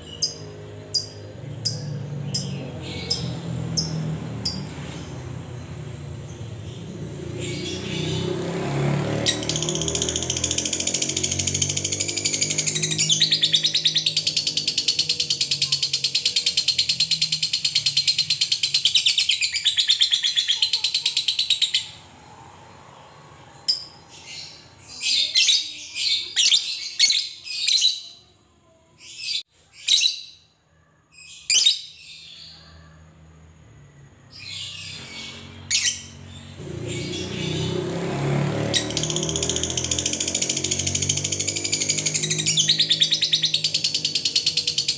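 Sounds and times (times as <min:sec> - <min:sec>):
bird chirps: 0:00.0 - 0:22.1, 0:33.9 - 0:44.9.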